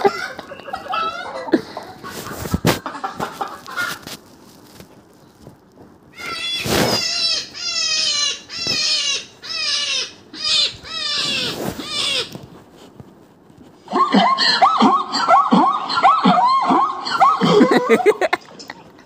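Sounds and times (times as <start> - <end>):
recorded animal calls from speaker: 6.2 - 12.4, 13.9 - 18.0.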